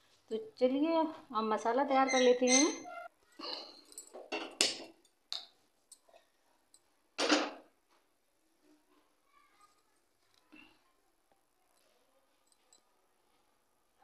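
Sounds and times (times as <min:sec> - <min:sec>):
kitchen utensils clattering: 0:02.0 - 0:02.9, 0:03.7 - 0:05.0.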